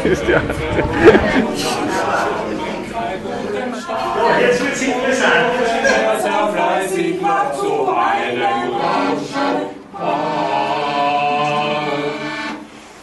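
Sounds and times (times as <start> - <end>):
group singing a cappella: 0.0 - 13.0.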